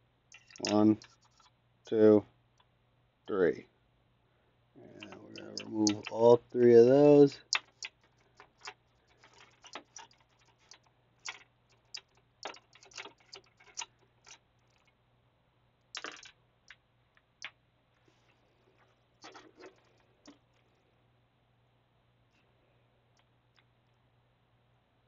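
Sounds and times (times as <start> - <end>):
light clicks of plastic parts: 0.3 - 1.5, 5.0 - 14.9.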